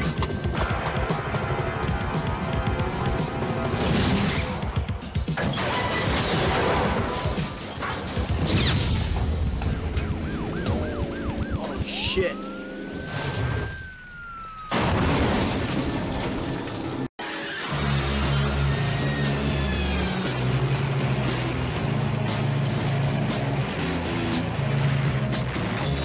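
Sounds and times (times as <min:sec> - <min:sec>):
police siren wailing: 0:09.6 - 0:15.3
car crashing with clattering debris: 0:14.7 - 0:17.1.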